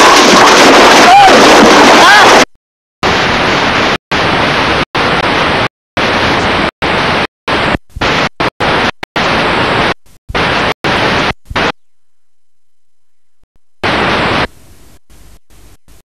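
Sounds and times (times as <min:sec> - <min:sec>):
loud static hiss: 0:03.0 - 0:11.7, 0:13.8 - 0:16.0.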